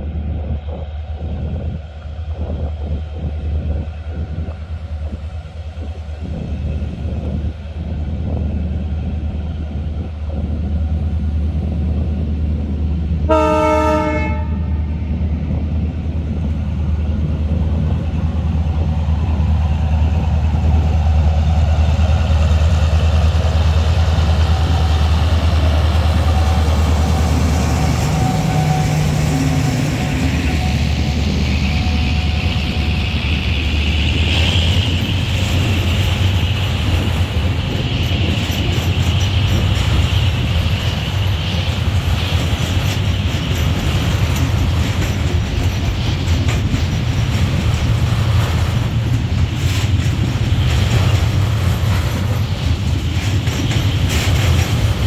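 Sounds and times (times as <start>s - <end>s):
freight train passing: 0.0s - 55.0s
locomotive horn blast: 13.3s - 15.0s, 27.9s - 32.9s.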